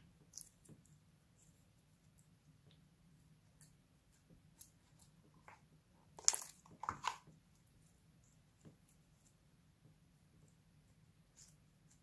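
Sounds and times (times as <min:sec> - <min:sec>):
hands squishing slime: 0:03.5 - 0:07.3.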